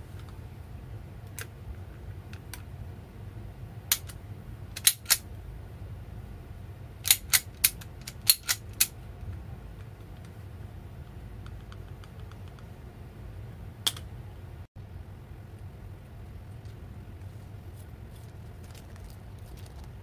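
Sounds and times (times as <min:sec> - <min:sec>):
low steady hum: 0:00.0 - 0:20.0
metal clicks of air pistol: 0:04.8 - 0:05.2, 0:07.1 - 0:08.9.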